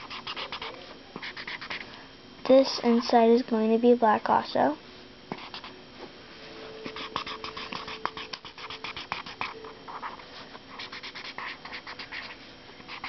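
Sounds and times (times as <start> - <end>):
marker scribbling on paper: 0.0 - 1.8, 5.3 - 5.7, 6.9 - 13.0.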